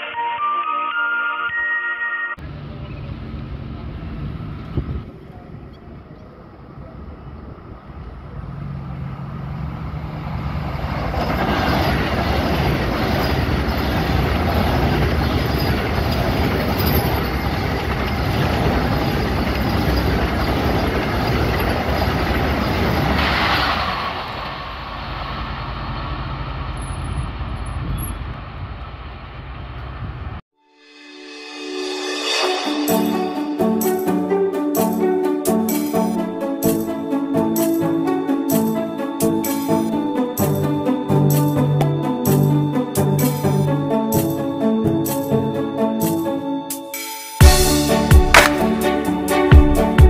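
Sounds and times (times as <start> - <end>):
train wheels rushing on rails: 2.5 - 30.4.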